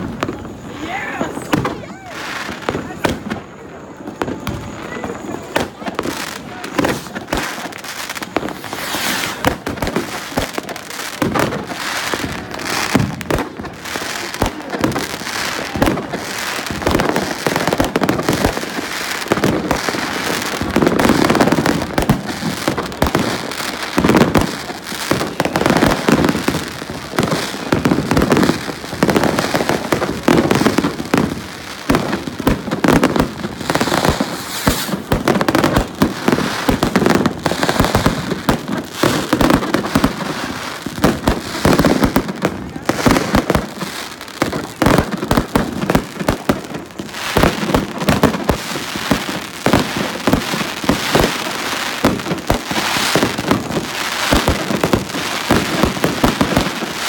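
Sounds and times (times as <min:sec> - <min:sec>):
fireworks bangs and crackling: 0:00.0 - 0:57.0.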